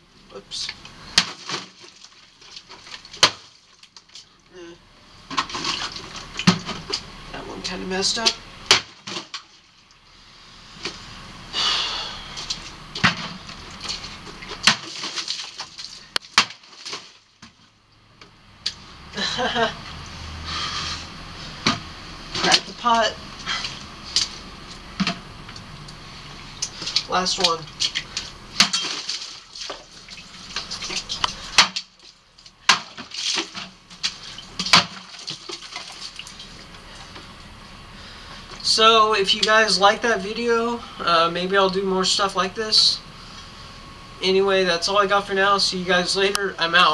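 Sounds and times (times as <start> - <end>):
machete whacking plastic jugs: 1.1 - 4.2, 5.3 - 7.0, 8.6 - 9.6, 12.4 - 17.6, 21.6 - 22.7, 26.7 - 30.0, 30.6 - 32.0, 32.6 - 36.2
plastic jugs rustling and knocking: 1.1 - 4.3, 5.2 - 7.1, 8.2 - 9.6, 12.5 - 17.7, 21.6 - 22.9, 23.7 - 25.3, 26.7 - 36.4.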